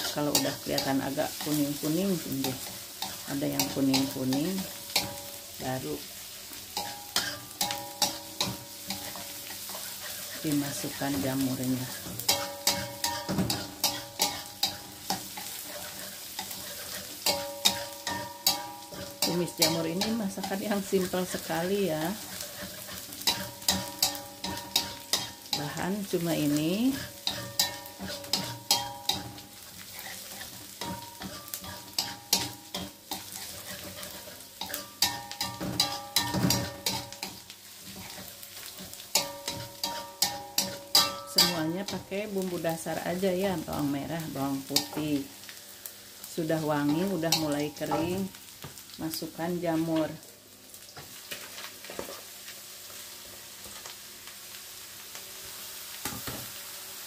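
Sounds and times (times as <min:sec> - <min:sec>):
light sizzle: 0:00.0 - 0:57.0
wooden spatula scraping wok: 0:06.8 - 0:42.0
spatula clacking against pan: 0:12.0 - 0:20.1, 0:27.0 - 0:29.4, 0:30.0 - 0:41.5.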